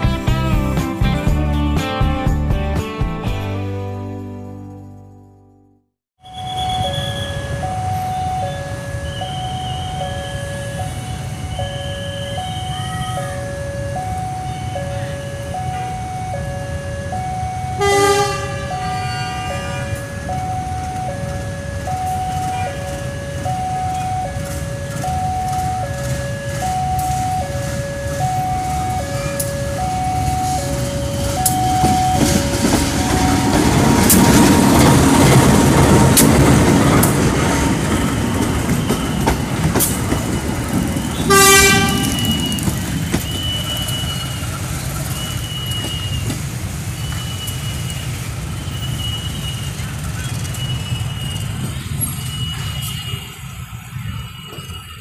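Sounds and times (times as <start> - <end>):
level crossing alarm ding-dong: 6.2 - 33.9
train wheels on rails: 6.4 - 55.0
train horn toot: 17.8 - 20.3, 41.1 - 44.4.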